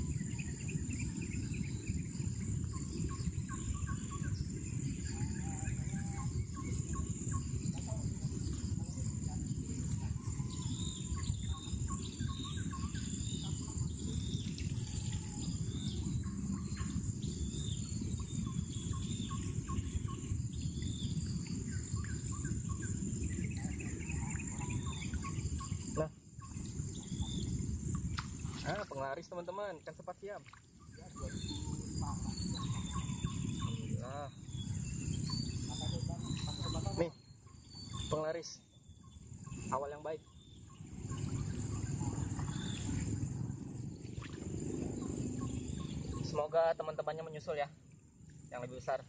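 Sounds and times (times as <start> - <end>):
small birds chirping: 0.0 - 49.0
low rumble: 30.9 - 37.2, 40.4 - 47.1.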